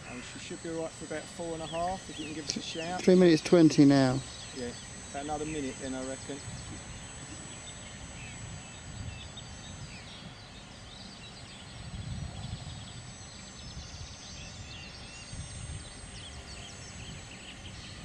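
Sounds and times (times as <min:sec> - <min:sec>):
birds chirping: 0:00.0 - 0:18.0
wind buffeting microphone: 0:04.9 - 0:10.9, 0:11.6 - 0:18.0.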